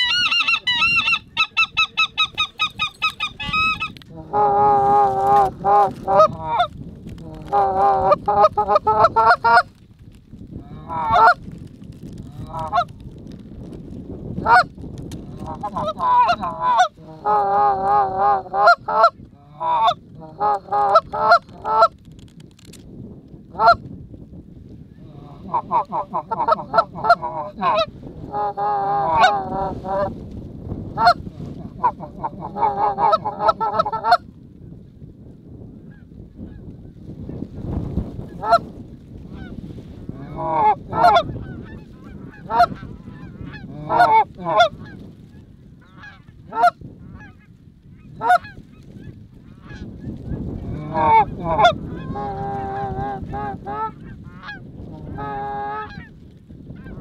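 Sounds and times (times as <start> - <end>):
goose calling: 0.0 - 9.7, 10.7 - 11.4, 15.3 - 21.9, 25.0 - 30.2, 31.0 - 34.2, 39.3 - 45.0, 45.8 - 49.9, 50.7 - 56.2.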